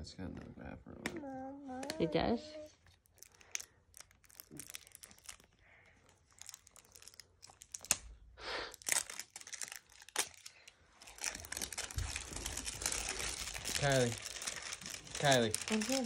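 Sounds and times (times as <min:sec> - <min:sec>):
plastic wrap crinkling and tearing: 0:02.6 - 0:16.0.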